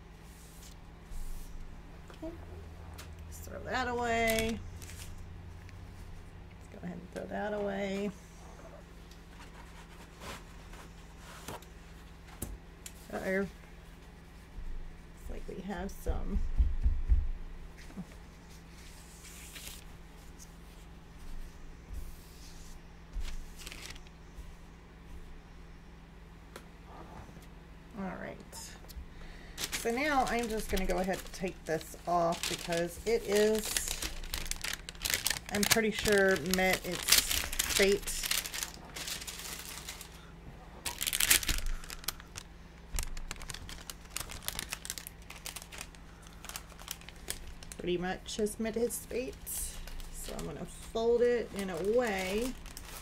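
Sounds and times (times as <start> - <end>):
paper sheet crinkling: 3.9 - 5.2, 18.5 - 21.4, 22.4 - 24.2, 29.5 - 40.2, 40.8 - 48.0, 48.8 - 53.0
paper towel wiping plastic: 29.7 - 40.1.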